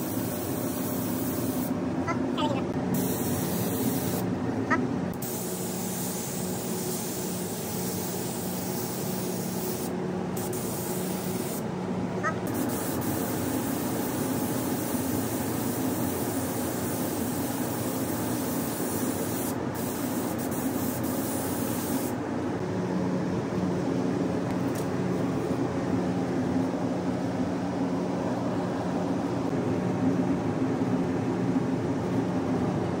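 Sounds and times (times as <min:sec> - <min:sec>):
air spray gun hissing: 0:00.0 - 0:01.8, 0:02.9 - 0:04.3, 0:05.1 - 0:11.6, 0:12.4 - 0:22.2
low machine hum: 0:00.0 - 0:18.1, 0:22.1 - 0:33.0.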